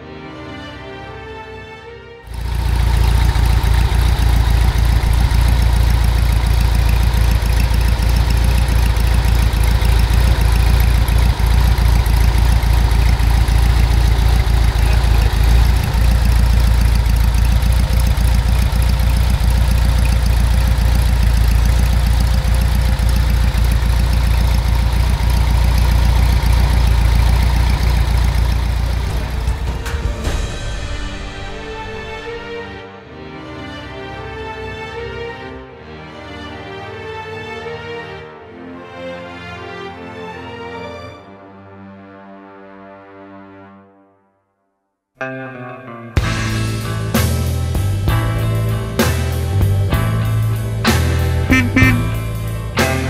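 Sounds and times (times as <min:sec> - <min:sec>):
car engine idling: 0:02.3 - 0:30.1, 0:46.4 - 0:53.0.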